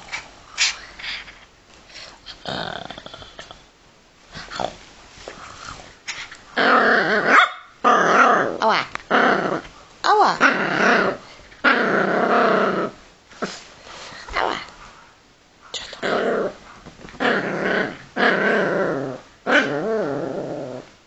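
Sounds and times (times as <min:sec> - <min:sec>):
dog growling playfully: 0:02.3 - 0:03.6, 0:05.6 - 0:09.7, 0:10.3 - 0:13.6, 0:15.9 - 0:20.9.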